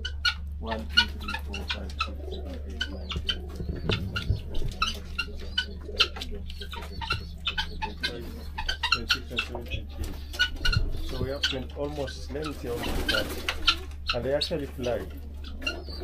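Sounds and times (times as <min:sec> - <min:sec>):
guineafowl calling: 0:00.0 - 0:16.0
pigeons cooing: 0:00.0 - 0:16.0
steady low hum: 0:00.0 - 0:16.0.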